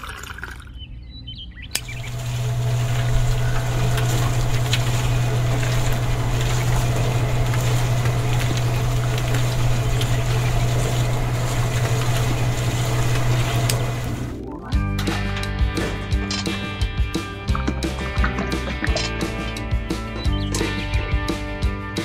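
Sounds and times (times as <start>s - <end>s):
small electric motor humming: 1.8s - 14.2s.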